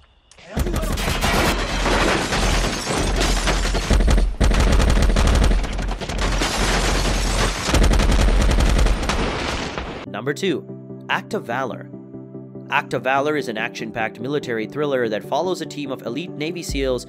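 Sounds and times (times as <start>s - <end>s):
automatic gunfire: 3.8s - 9.4s.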